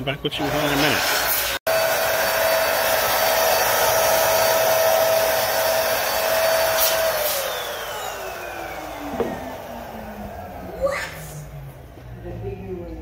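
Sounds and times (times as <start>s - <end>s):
balloon inflator motor humming: 0.6s - 10.8s.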